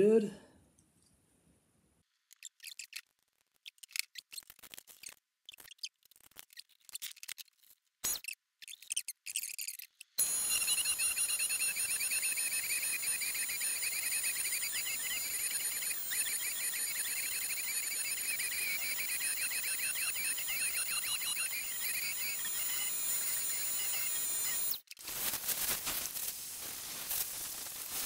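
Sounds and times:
rotary tool high whine: 10.2s - 28.0s.

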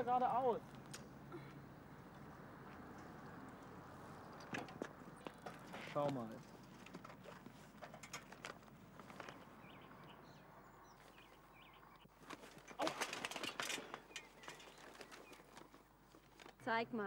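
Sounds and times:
bicycle clattering on paving: 4.3s - 9.8s, 12.2s - 16.6s.

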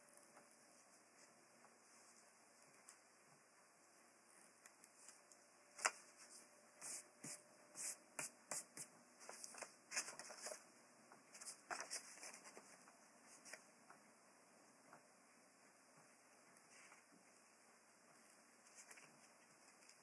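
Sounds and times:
thin paper rustling: 9.2s - 10.6s, 11.3s - 13.6s.

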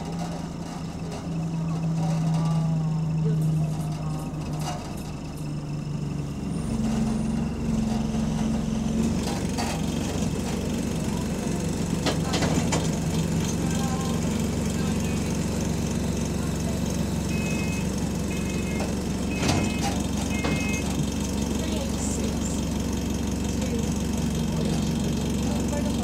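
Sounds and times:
bus engine droning: 0.0s - 26.0s
short high beeps: 17.3s - 20.9s.

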